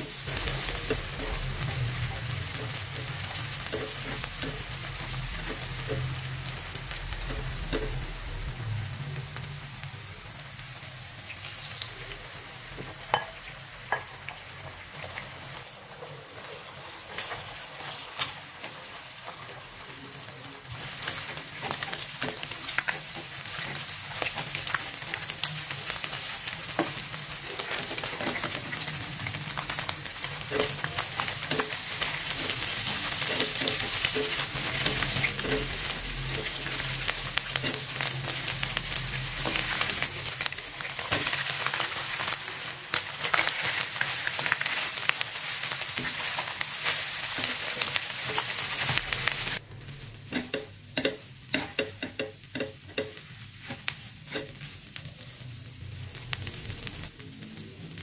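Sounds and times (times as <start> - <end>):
spatula scraping and tapping wok: 0.0 - 8.3, 12.7 - 15.4, 20.8 - 54.9
food sizzling in hot oil: 0.0 - 58.0.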